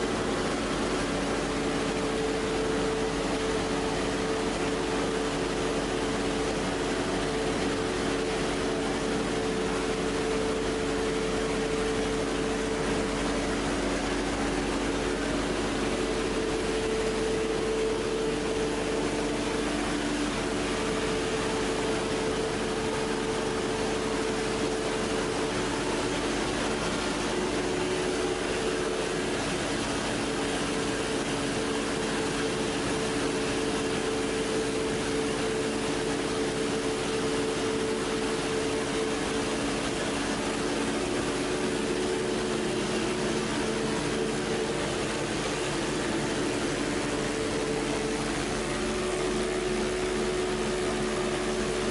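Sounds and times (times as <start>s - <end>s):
machinery drone: 0.0s - 51.9s.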